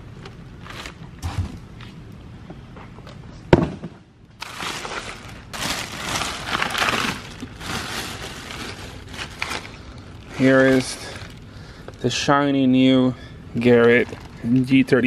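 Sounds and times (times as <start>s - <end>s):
plastic and paper crinkling: 4.4s - 12.2s, 13.6s - 15.0s.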